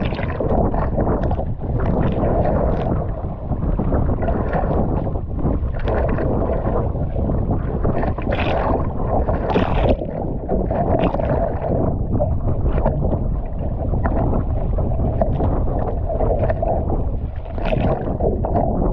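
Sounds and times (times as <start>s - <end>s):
water sloshing against kayak hull: 0.0s - 18.9s
waves splashing against boat: 0.0s - 18.9s
wind rumbling on microphone: 0.0s - 18.9s.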